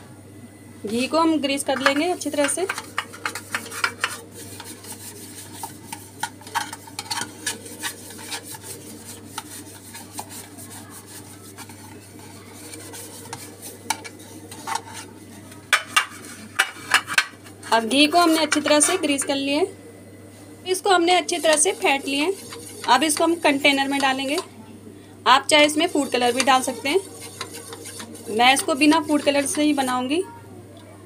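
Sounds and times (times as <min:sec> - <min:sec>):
steady low hum: 0:00.0 - 0:31.0
fingers rubbing inside metal tin: 0:01.7 - 0:15.1, 0:21.2 - 0:24.4, 0:25.6 - 0:30.0
light scraping: 0:25.6 - 0:29.9.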